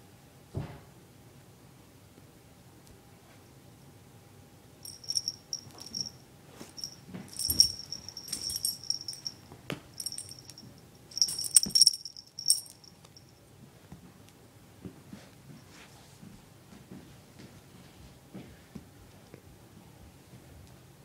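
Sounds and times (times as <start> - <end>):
small bell jingling: 4.8 - 9.4, 10.0 - 13.3
scuffs and knocks: 4.9 - 9.4, 10.0 - 12.9.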